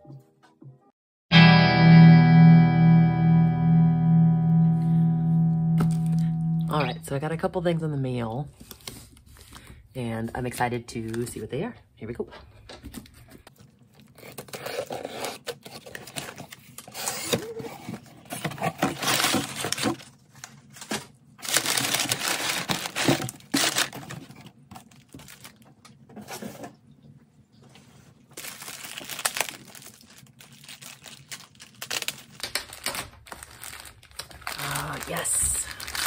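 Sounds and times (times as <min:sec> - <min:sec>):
packing tape scratched and torn: 0:14.0 - 0:25.6, 0:28.4 - 0:36.0
plastic mailer crinkling: 0:14.0 - 0:25.8, 0:28.3 - 0:36.0.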